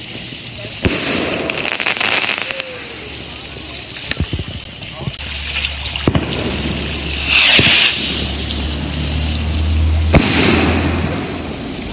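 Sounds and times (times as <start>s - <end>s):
firework rocket launch hiss: 0.0s - 11.9s
firework bang: 0.8s - 3.0s, 4.0s - 11.9s
steady low rumble: 2.5s - 11.9s.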